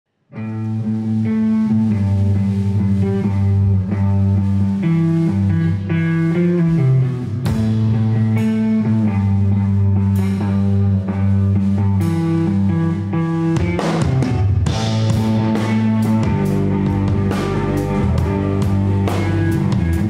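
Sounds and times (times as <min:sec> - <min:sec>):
bass guitar line: 0:00.3 - 0:20.0
electric guitar chords: 0:00.3 - 0:20.0
drums hit: 0:13.6 - 0:20.0.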